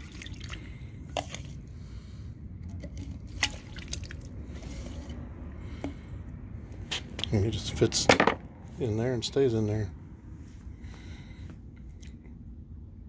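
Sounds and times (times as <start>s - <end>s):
water squishing and splashing: 0.0s - 1.5s, 2.8s - 5.1s.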